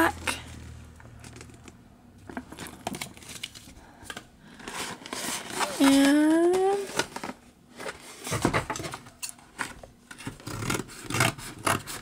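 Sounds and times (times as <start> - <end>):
hands rustling a cardboard box: 2.3 - 9.0.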